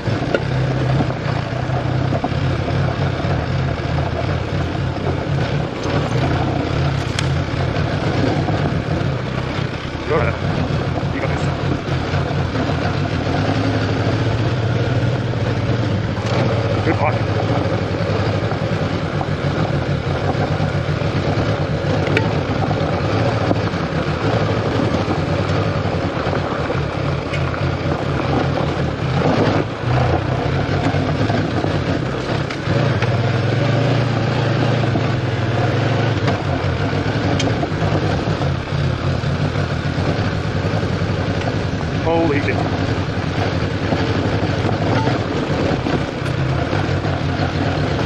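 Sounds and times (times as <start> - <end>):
motorcycle engine running: 0.0 - 48.0
wind and road noise: 0.0 - 48.0.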